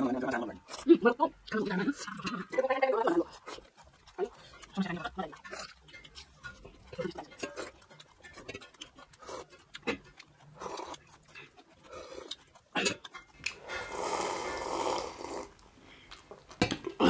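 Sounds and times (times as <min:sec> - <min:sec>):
lip smacks and chewing: 0:03.2 - 0:14.2
slurping broth: 0:03.2 - 0:16.1.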